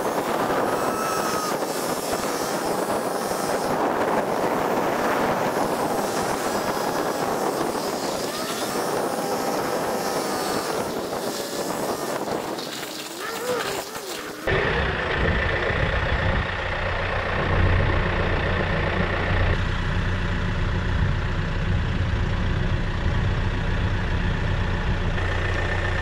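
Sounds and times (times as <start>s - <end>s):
tyres on gravel: 0.0s - 14.5s
wind on microphone: 0.0s - 16.6s.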